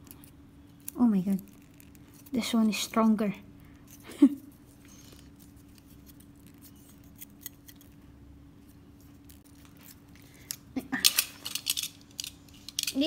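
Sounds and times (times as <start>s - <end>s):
faint steady hum: 0.0s - 13.0s
plastic parts clicking: 10.4s - 13.0s.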